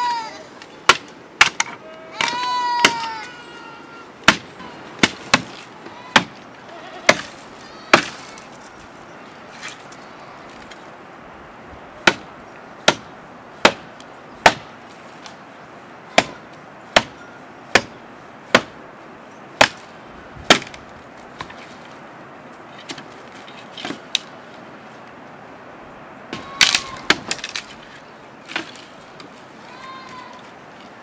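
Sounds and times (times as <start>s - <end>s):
blade chopping tree trunk: 0.9s - 3.2s, 4.2s - 6.4s, 7.1s - 8.2s, 12.0s - 14.8s, 16.2s - 16.4s, 17.0s - 18.8s, 19.6s - 20.8s, 26.3s - 27.8s.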